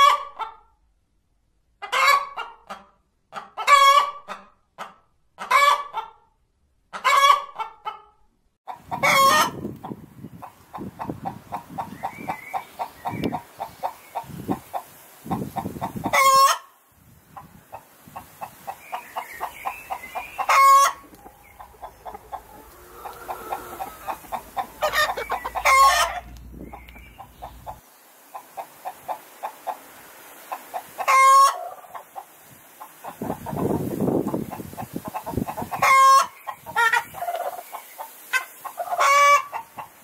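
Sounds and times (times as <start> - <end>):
chickens clucking: 1.8 - 6.2, 6.9 - 40.0
loud brief chicken calls: 19.9 - 26.4.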